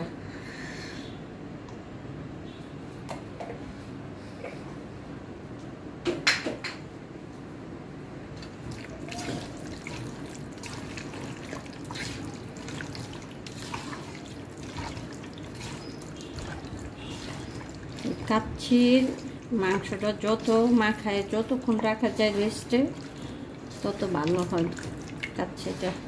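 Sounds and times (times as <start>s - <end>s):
hand kneading meat in marinade: 8.4s - 26.0s.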